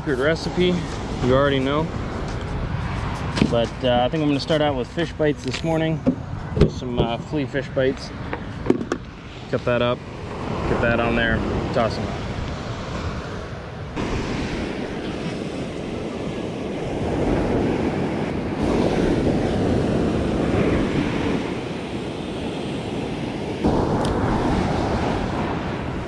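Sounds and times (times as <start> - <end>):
wind buffeting microphone: 0.0 - 26.0
surf breaking on beach: 14.0 - 26.0.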